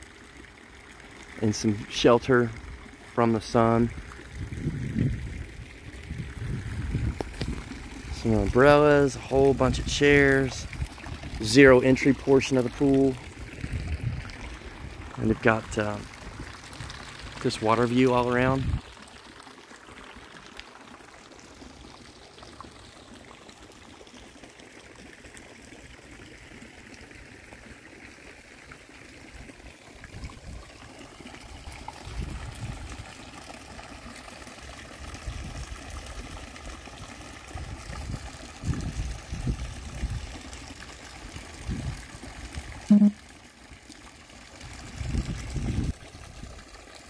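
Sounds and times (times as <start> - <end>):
trickling water: 0.0 - 47.0
wind rumbling on microphone: 3.9 - 8.5, 13.4 - 15.1, 18.5 - 18.8, 32.1 - 33.0, 37.6 - 40.3, 41.6 - 42.0, 44.8 - 46.5.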